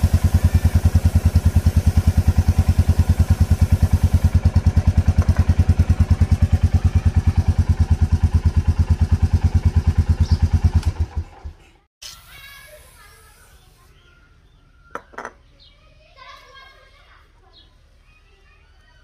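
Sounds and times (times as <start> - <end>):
aerosol can hissing: 0.0 - 4.4, 12.0 - 13.8
motorcycle engine idling: 0.0 - 11.7.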